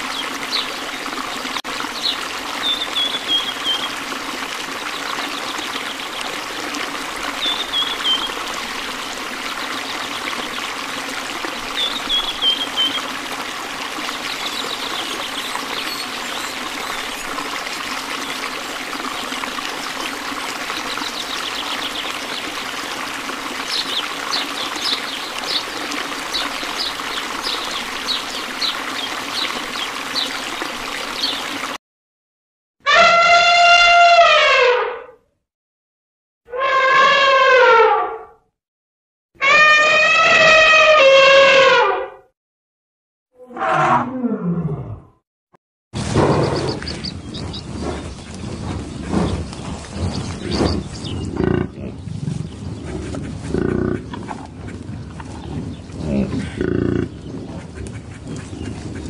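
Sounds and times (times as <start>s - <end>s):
small fountain trickling: 0.0s - 31.8s.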